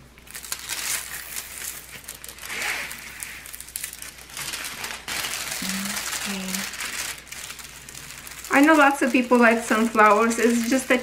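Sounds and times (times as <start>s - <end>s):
plastic film crinkling: 0.0s - 11.0s.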